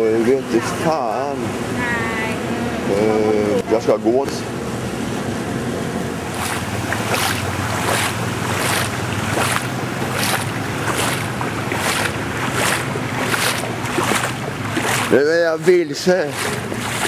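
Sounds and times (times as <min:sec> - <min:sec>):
footsteps wading through water: 0:06.0 - 0:17.0.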